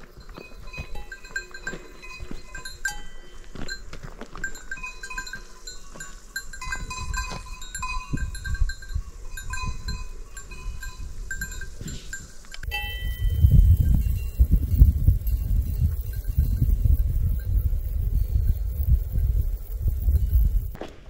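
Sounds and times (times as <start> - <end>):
goat bells clinking: 0.0 - 20.8.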